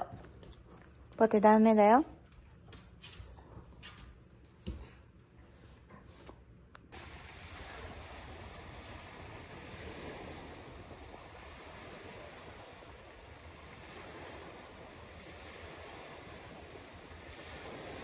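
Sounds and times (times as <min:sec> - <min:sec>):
small waves washing onto sand: 0:06.9 - 0:18.0
wind rumble on microphone: 0:07.0 - 0:18.0.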